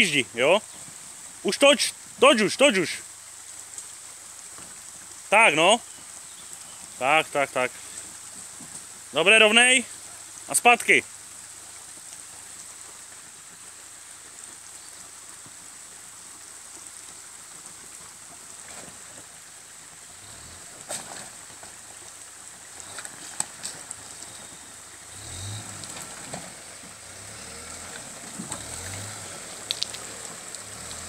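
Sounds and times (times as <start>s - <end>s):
stream rushing over rocks: 0.0s - 31.0s
pickup engine rumble: 18.6s - 31.0s.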